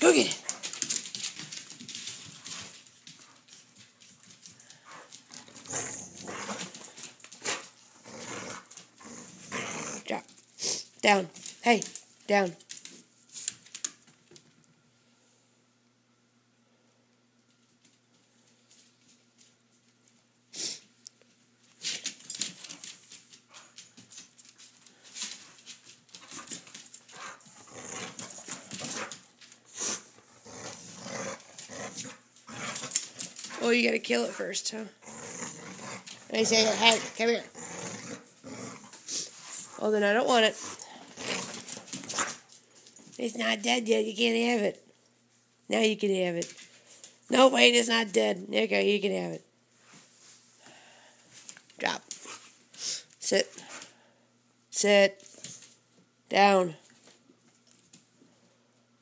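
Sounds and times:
dog growling: 4.9 - 10.3, 27.2 - 29.1, 29.8 - 33.7, 34.3 - 39.8, 40.6 - 42.3.

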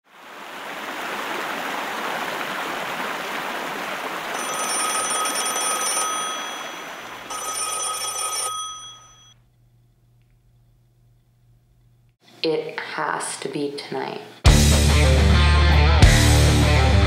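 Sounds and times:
rushing water: 0.1 - 7.6
telephone bell ringing: 4.4 - 9.4.

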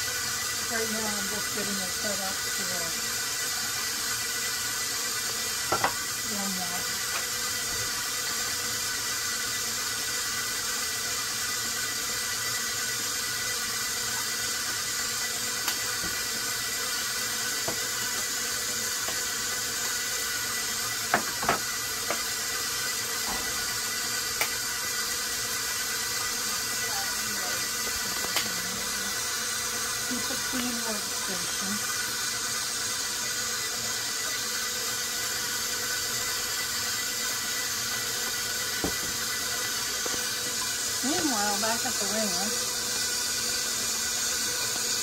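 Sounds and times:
kitchenware clinking and knocking: 38.8 - 39.2.

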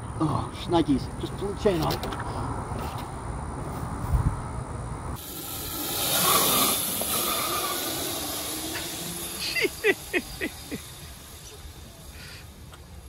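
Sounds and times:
electric go-kart whine: 5.1 - 13.0
falling chirps: 5.2 - 13.0.

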